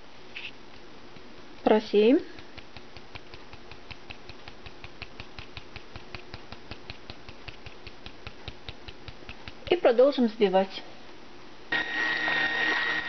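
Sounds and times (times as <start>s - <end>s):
plastic sieve ticking: 2.2s - 10.0s.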